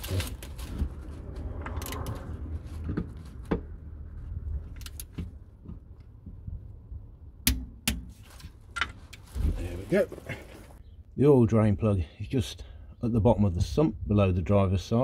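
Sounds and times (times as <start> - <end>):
low steady rumble: 0.0 - 9.6
tools clicking and knocking: 4.6 - 6.1.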